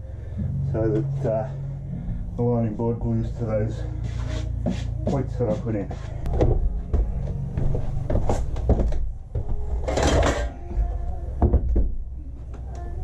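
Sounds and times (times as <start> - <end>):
wood knocking and scraping: 4.1 - 10.5.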